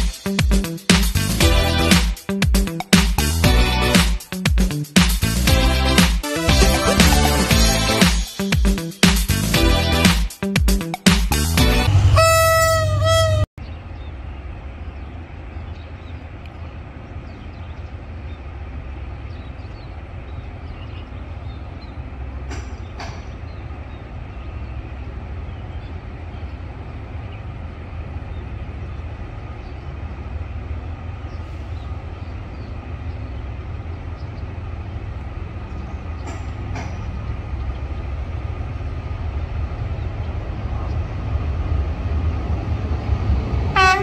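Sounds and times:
distant train rumble: 0.0s - 44.0s.

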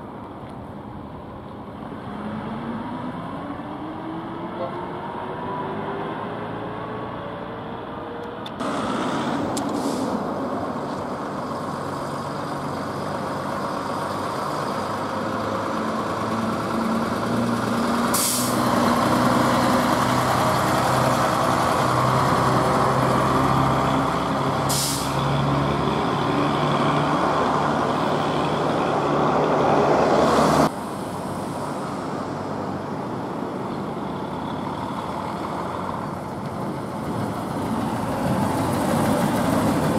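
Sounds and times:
diesel buses driving past: 0.0s - 39.9s
air brakes hissing: 8.6s - 10.4s, 18.1s - 18.7s, 24.6s - 25.3s.

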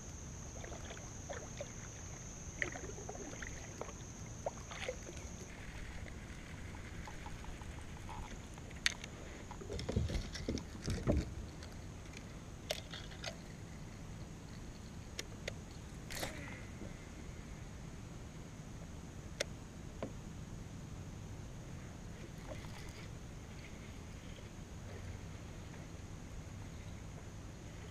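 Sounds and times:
water sloshing from paddle strokes: 0.4s - 13.8s, 22.1s - 26.0s.

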